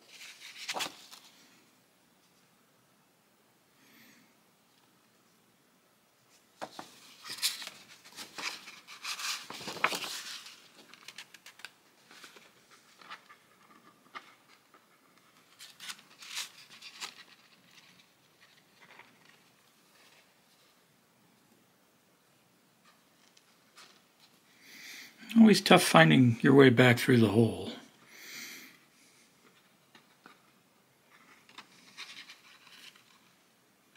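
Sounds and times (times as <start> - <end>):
paper rustling and crinkling: 0.0 - 1.6, 6.6 - 20.8, 22.8 - 24.4, 31.1 - 33.4.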